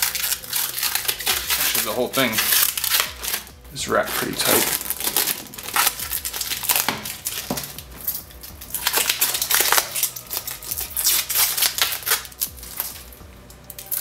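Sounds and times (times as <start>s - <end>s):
plastic film peeling and crinkling: 0.0s - 14.0s.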